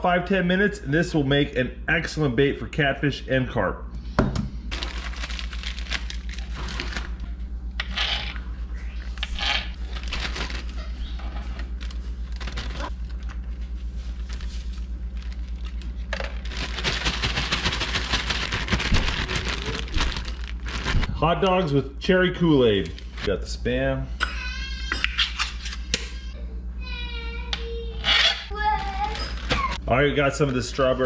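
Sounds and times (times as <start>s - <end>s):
steady low hum: 0.0s - 31.0s
plastic bag crinkling: 4.7s - 7.2s, 9.7s - 21.2s, 28.8s - 30.6s.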